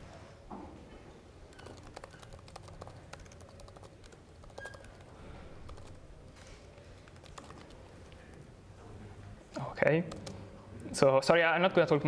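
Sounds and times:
laptop keyboard typing: 1.5s - 6.0s, 7.0s - 8.2s, 10.1s - 10.4s.

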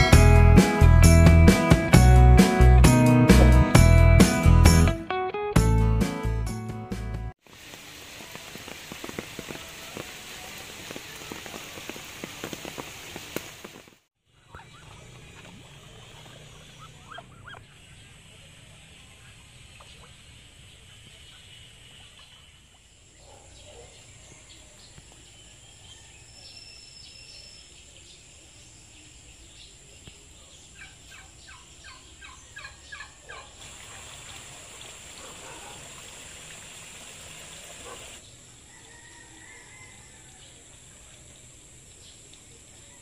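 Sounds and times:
steady hiss: 7.4s - 14.0s
poultry calling: 16.5s - 17.8s.

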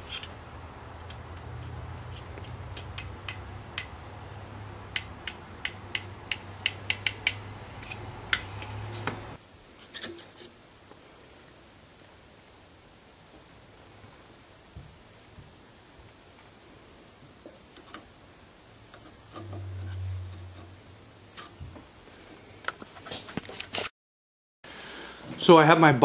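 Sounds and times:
wrench clicking on wooden capstan: 4.9s - 8.4s
steady low hum: 18.4s - 22.4s.

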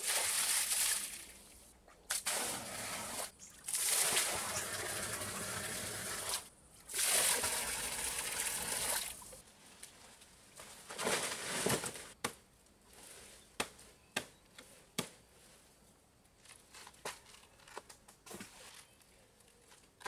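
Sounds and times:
water splashing into pond: 0.0s - 1.3s, 2.1s - 9.4s
rustle: 9.1s - 20.0s.

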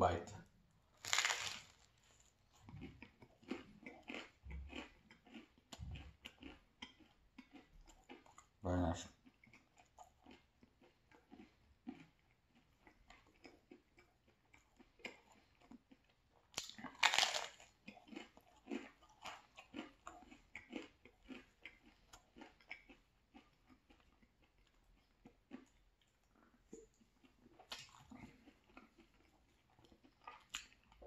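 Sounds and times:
close chewing with mouth smacks: 1.0s - 31.0s
crust clicking between teeth: 16.6s - 19.4s.

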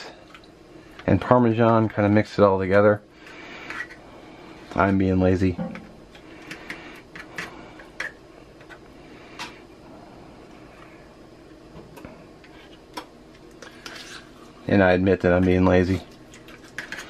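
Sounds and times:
faint steady hum: 0.0s - 17.0s
fork scraping ricotta: 13.6s - 14.6s, 16.4s - 17.0s.

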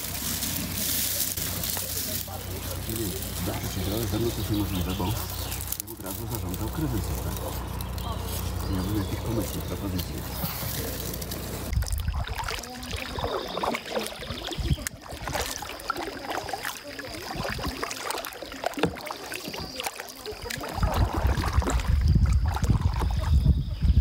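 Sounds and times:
low rumble: 0.0s - 13.6s
paddle splashing through water: 0.0s - 23.9s.

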